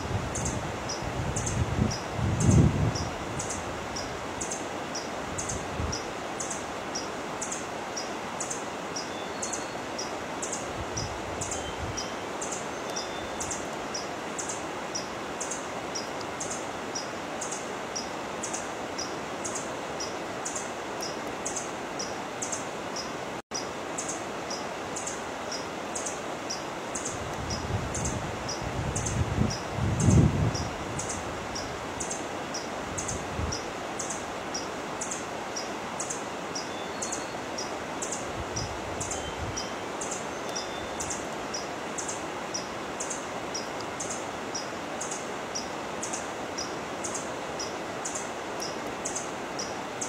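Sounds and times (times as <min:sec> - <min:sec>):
steady rustling hiss: 0:00.0 - 0:50.0
faint whistled bird notes: 0:11.0 - 0:13.6, 0:38.6 - 0:41.6.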